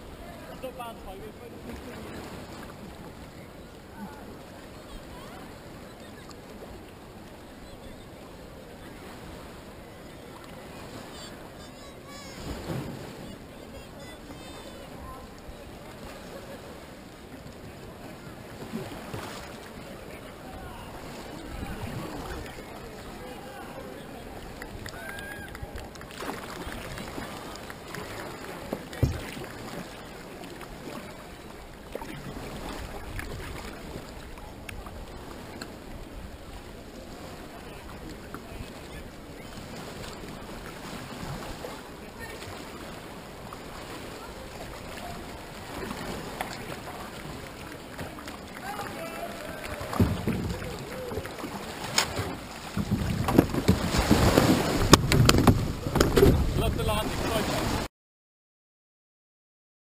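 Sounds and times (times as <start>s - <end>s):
paddle splashes: 0.0s - 57.9s
water sloshing around kayak: 0.0s - 57.9s
knocks against hull: 28.7s - 29.5s, 49.9s - 50.9s, 51.9s - 56.7s
kayak hull scraping concrete: 43.6s - 57.9s
wind on microphone: 52.1s - 57.9s.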